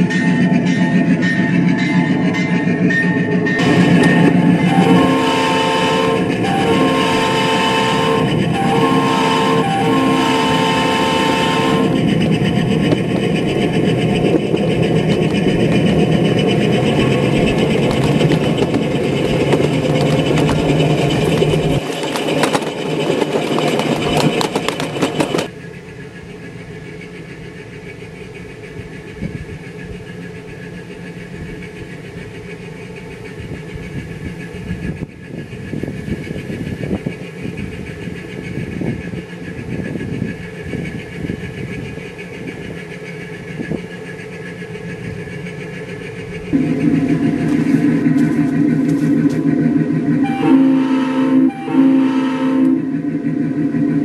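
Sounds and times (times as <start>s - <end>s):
small diesel engine running: 8.5s - 51.0s.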